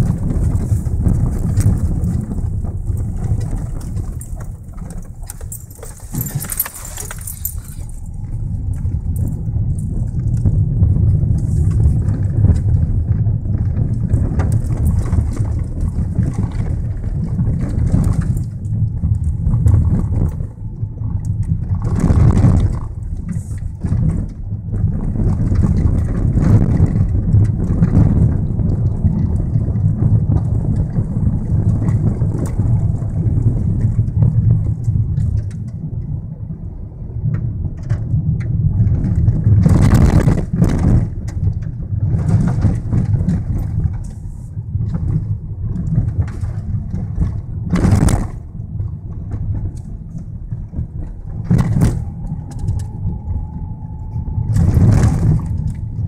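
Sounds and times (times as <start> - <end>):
car jolting on rough ground: 0.0 - 20.4
engine and tyre rumble: 0.0 - 56.0
faint steady whine: 0.0 - 56.0.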